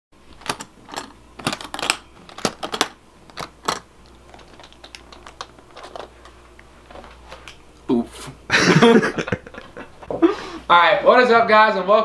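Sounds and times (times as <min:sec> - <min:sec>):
metal latches snapping open: 0:00.3 - 0:06.2.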